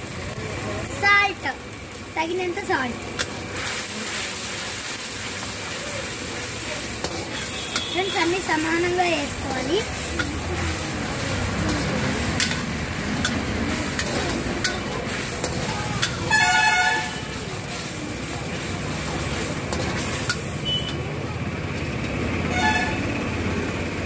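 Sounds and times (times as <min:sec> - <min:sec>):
gas burner rushing: 0:00.0 - 0:22.6
sauce bubbling: 0:01.5 - 0:20.9
vehicle horn honking: 0:07.3 - 0:08.3, 0:16.2 - 0:17.3, 0:20.6 - 0:21.0, 0:22.5 - 0:23.2
ladle clicking against wok: 0:10.0 - 0:16.3, 0:19.7 - 0:21.0.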